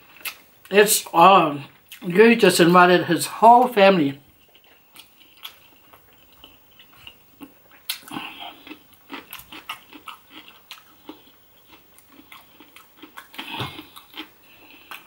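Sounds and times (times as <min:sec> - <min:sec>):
chewing food: 0:00.0 - 0:00.8, 0:01.6 - 0:02.1, 0:03.6 - 0:15.0
wet mouth sounds: 0:04.5 - 0:11.2.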